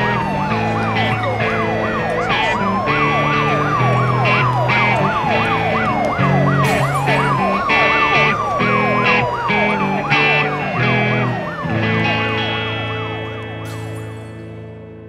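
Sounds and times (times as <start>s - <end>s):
punk rock band playing: 0.0s - 14.8s
yelping siren: 0.0s - 14.8s
wailing siren: 0.0s - 14.9s.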